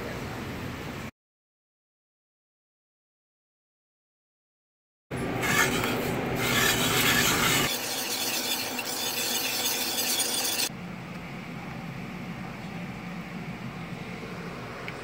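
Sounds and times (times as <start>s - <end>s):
wire whisk scraping a saucepan: 5.4s - 10.7s.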